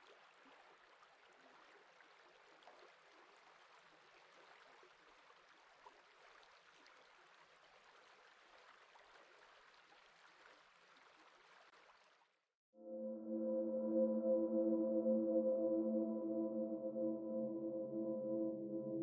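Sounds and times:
music with ringing tones: 12.8s - 19.0s.

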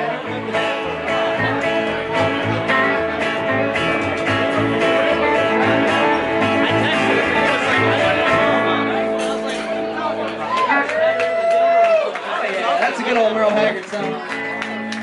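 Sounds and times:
plucked upright bass: 0.0s - 10.5s
acoustic guitar: 0.0s - 11.6s
electric guitar: 0.0s - 12.2s, 13.2s - 15.0s.

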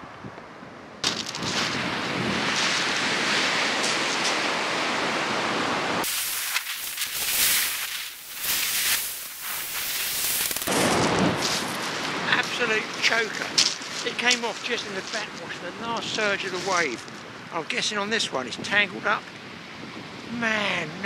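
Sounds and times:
surf washing up shingle beach: 1.1s - 17.7s.

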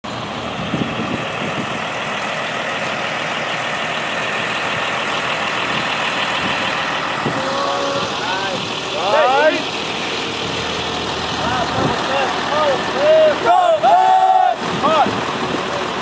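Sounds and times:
bus engine idling: 0.0s - 16.0s.

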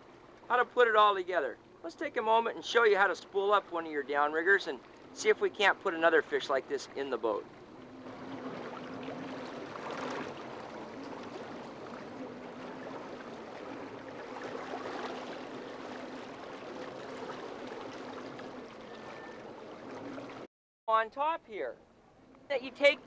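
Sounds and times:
boat motor humming: 0.0s - 20.5s, 21.8s - 23.0s.

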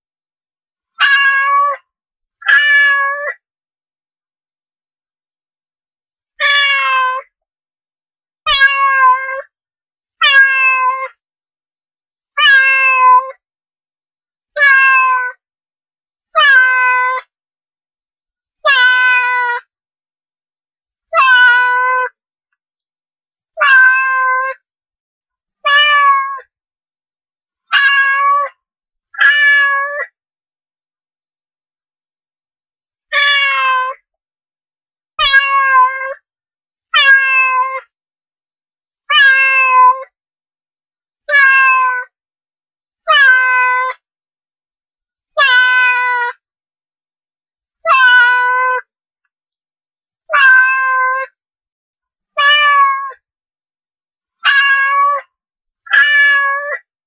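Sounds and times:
cat meowing: 1.0s - 1.8s, 2.4s - 3.4s, 6.4s - 7.3s, 8.5s - 9.5s, 10.2s - 11.2s, 12.4s - 13.4s, 14.6s - 15.4s, 16.4s - 17.3s, 18.6s - 19.7s, 21.1s - 22.2s, 23.6s - 24.6s, 25.6s - 26.4s, 27.7s - 28.6s, 29.2s - 30.1s, 33.1s - 34.0s, 35.2s - 36.2s, 37.0s - 37.9s, 39.1s - 40.1s, 41.3s - 42.1s, 43.1s - 44.0s, 45.4s - 46.4s, 47.8s - 48.9s, 50.3s - 51.4s, 52.4s - 53.2s, 54.4s - 55.3s, 55.9s - 56.9s.

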